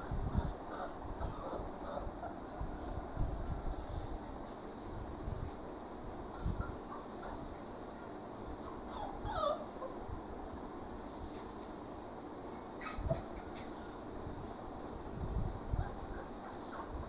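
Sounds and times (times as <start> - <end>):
puppy whimpering: 0.4 - 2.1, 8.6 - 10.0, 12.8 - 13.6.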